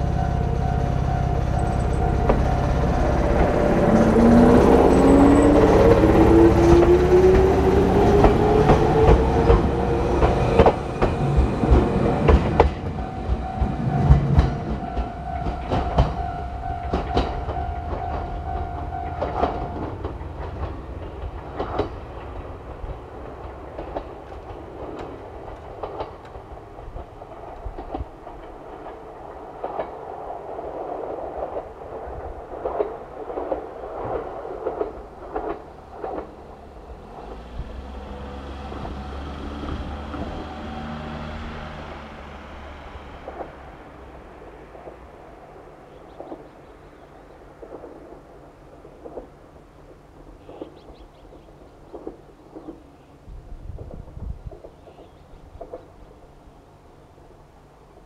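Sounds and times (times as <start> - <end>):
electric train motor whine: 0.0 - 21.3, 36.3 - 44.7
train wheels clicking over rail joints: 0.0 - 58.0
level crossing alarm: 12.8 - 20.0.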